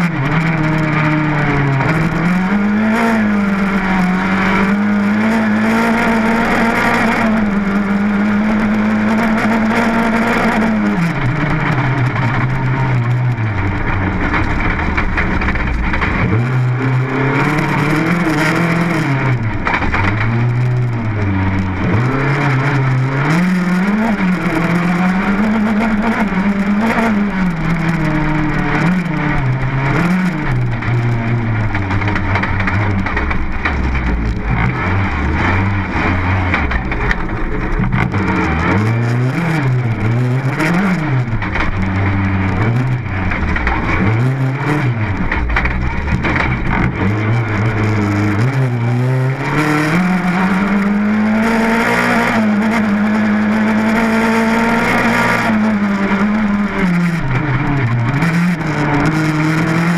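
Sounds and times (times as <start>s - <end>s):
rally car engine revving: 0.0s - 59.9s
tyres on gravel: 28.3s - 50.9s.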